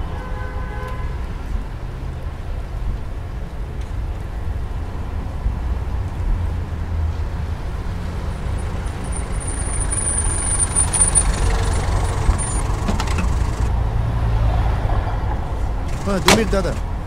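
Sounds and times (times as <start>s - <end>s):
car engine idling: 8.3s - 13.7s, 15.7s - 17.0s.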